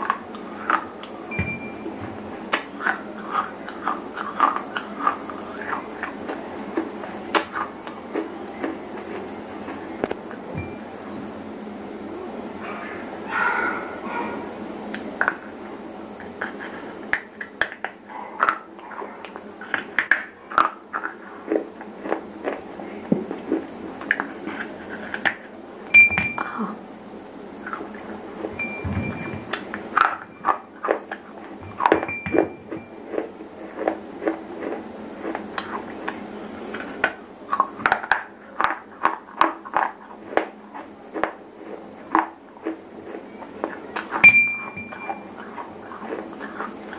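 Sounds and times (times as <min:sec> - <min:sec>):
fragments clinking on ceramic plate: 0:31.7 - 0:32.9.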